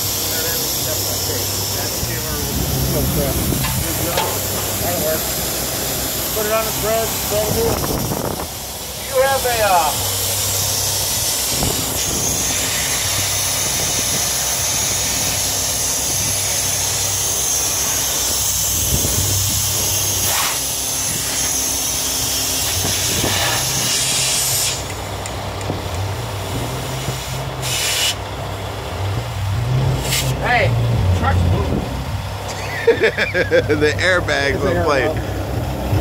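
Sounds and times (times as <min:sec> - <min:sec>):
compressed air hissing: 0:00.0 - 0:25.1, 0:26.3 - 0:28.3, 0:29.9 - 0:30.4
truck engine idling: 0:00.0 - 0:36.0.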